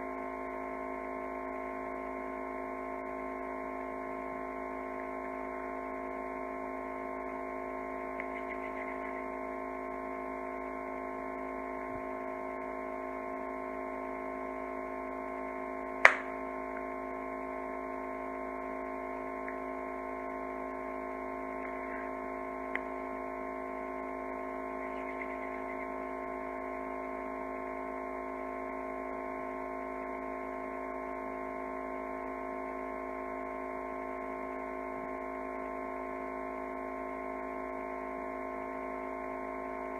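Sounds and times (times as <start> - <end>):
electrical hum: 0.0 - 39.9
sharp click: 16.0 - 16.3.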